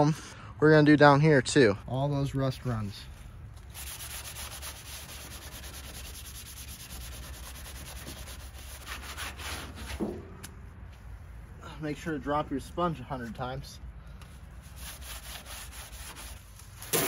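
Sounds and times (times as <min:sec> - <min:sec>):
wet sponge scrubbing paint: 0:03.6 - 0:10.0, 0:14.6 - 0:16.8.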